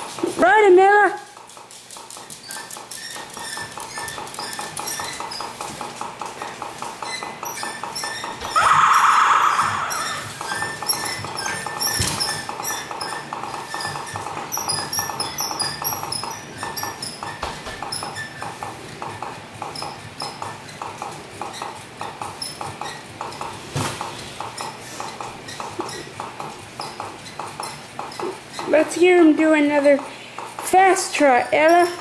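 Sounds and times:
electronic hoof clip-clops: 9.5s - 32.0s.

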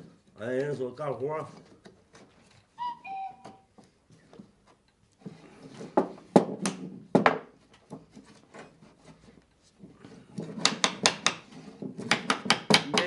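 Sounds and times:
wood rubbing and scraping on wood: 0.0s - 13.0s
sharp wooden knocks: 5.9s - 8.1s, 10.4s - 13.0s.

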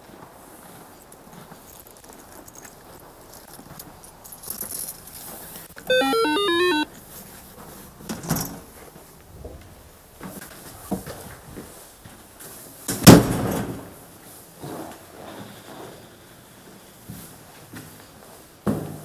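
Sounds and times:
intercom beeping unlock tune: 5.9s - 6.8s.

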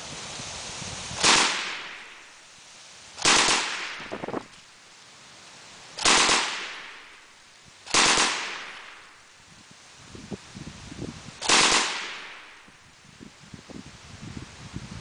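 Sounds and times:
automatic rifle firing bursts: 1.2s - 1.9s, 3.2s - 4.1s, 6.0s - 6.8s, 7.9s - 8.7s, 11.4s - 12.4s.

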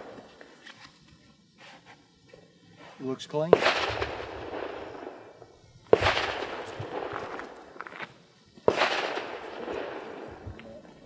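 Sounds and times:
gunshots with echo: 3.6s - 5.3s, 5.9s - 7.4s, 8.7s - 10.4s.

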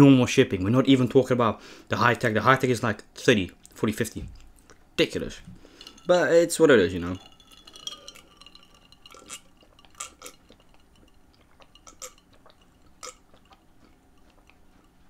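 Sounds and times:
person gulping juice: 7.4s - 15.0s.

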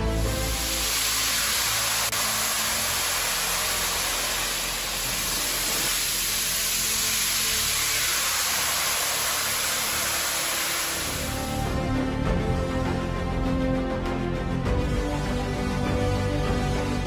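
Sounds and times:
high-pressure water jet hissing: 0.0s - 11.9s.

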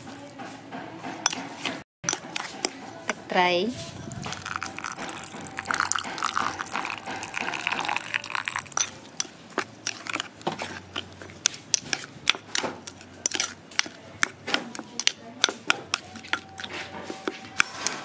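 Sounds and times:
liquid pouring into bowl: 4.1s - 9.4s.

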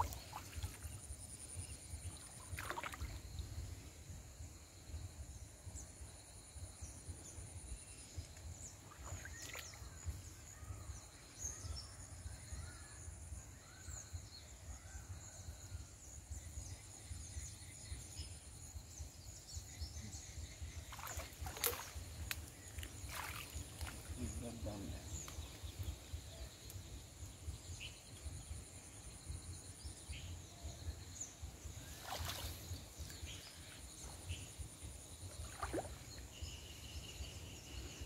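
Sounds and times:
net splashing in water: 2.5s - 3.2s, 20.9s - 22.0s, 23.0s - 24.0s, 32.0s - 32.6s, 35.4s - 36.0s.

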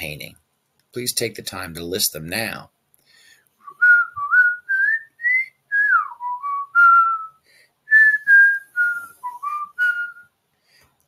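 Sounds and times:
person whistling a tune: 3.6s - 10.3s.

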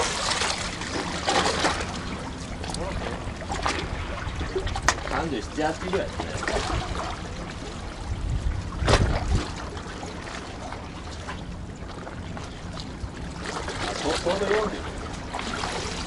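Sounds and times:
seawater sloshing among concrete blocks: 0.0s - 16.0s
wind rumbling on microphone: 1.1s - 10.8s.

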